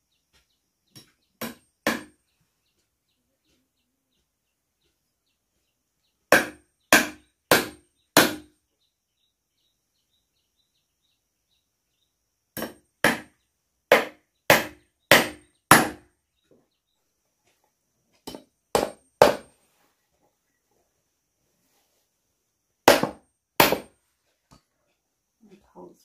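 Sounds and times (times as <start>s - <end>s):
hammer driving nails into wood: 1.0s - 2.2s, 6.3s - 8.5s, 12.6s - 16.1s, 18.2s - 19.5s, 22.8s - 24.0s.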